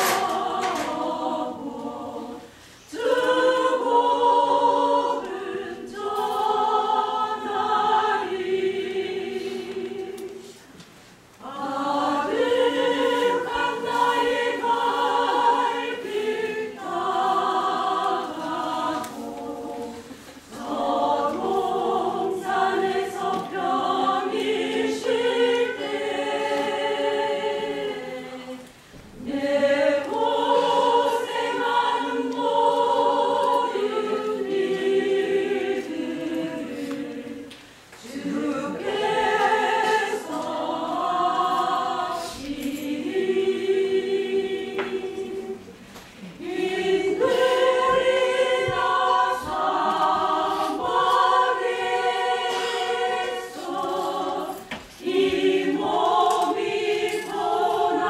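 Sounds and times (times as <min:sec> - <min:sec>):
women's choir singing a hymn: 0:00.0 - 0:58.0.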